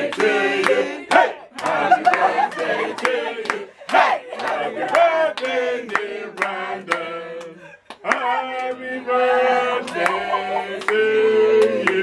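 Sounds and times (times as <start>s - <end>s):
group of people singing: 0.0s - 12.0s
people clapping: 0.0s - 12.0s.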